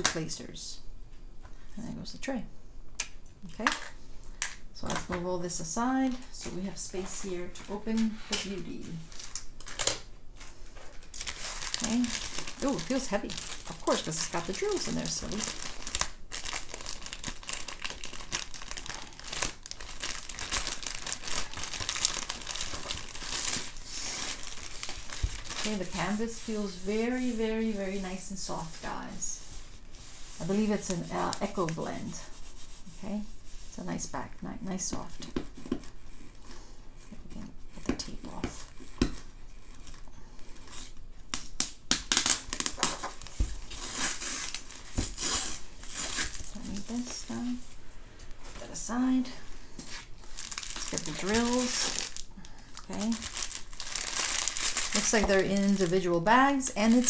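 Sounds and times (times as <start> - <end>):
plastic wrap crinkling: 5.9 - 32.9, 38.5 - 57.0
adhesive tape peeling: 41.3 - 43.1.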